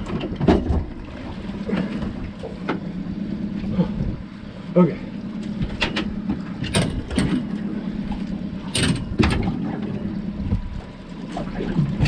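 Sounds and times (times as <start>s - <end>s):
splashes and knocks: 0.0s - 2.9s, 5.5s - 12.0s
outboard motor running: 0.0s - 12.0s.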